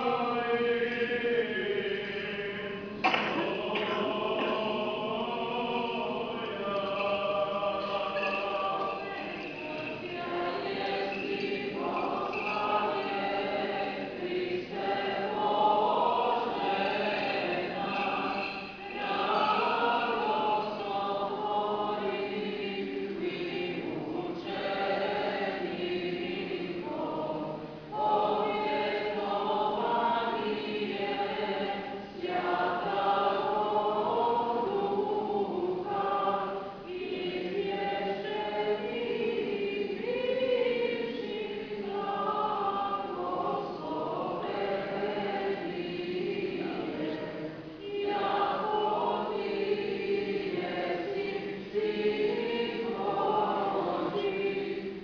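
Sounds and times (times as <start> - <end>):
women's choir chanting a cappella: 0.0 - 55.0.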